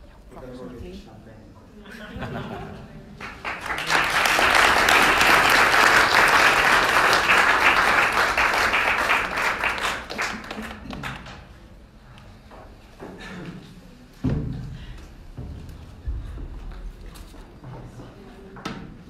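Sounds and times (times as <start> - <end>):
audience applauding: 3.2 - 11.4.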